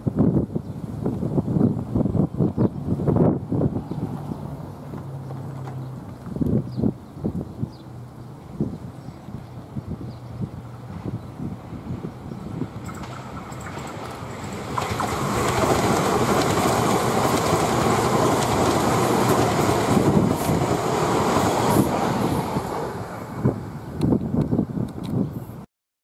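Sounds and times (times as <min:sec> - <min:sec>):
wind gusts on microphone: 0:00.0 - 0:25.7
train wheels rumbling on rails: 0:10.5 - 0:25.1.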